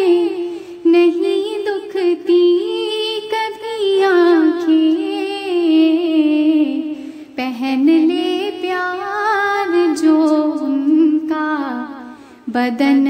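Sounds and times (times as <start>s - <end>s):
singer breathing: 0.4s - 0.9s, 6.8s - 7.4s, 12.0s - 12.5s.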